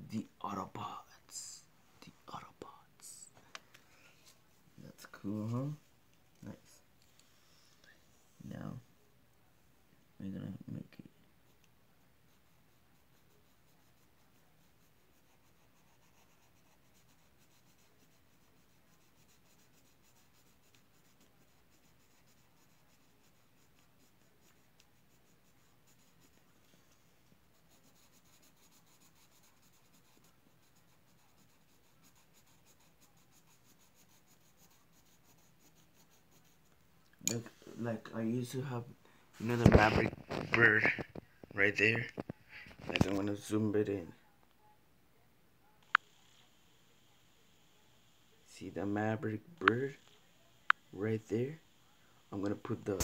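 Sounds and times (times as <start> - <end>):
pencil scratching on paper: 12.2 - 36.8.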